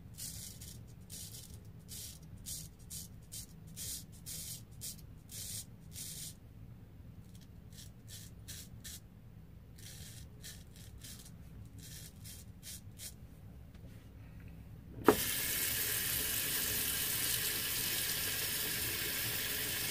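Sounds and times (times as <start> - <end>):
razor scraping beard stubble: 7.3 - 9.0, 9.8 - 13.2.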